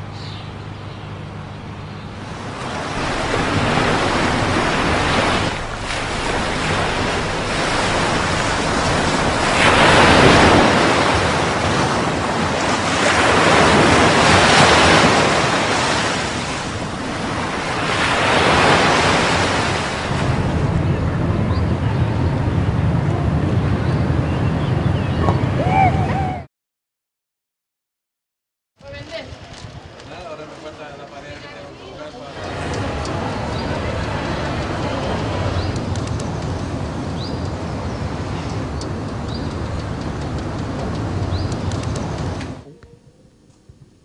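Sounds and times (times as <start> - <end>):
low steady hum: 0.0 - 14.3, 19.8 - 25.1
wind: 0.0 - 26.5, 28.8 - 44.0
ocean surf breaking on rocks: 2.2 - 21.5, 32.4 - 42.6.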